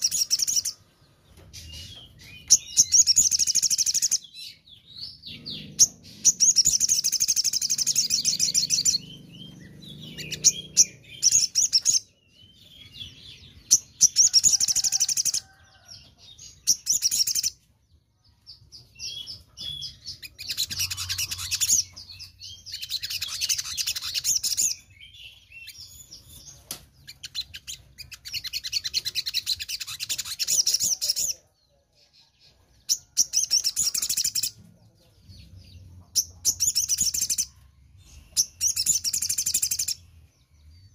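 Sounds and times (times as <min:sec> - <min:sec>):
bird twittering: 0:05.0 - 0:15.6, 0:19.1 - 0:31.4.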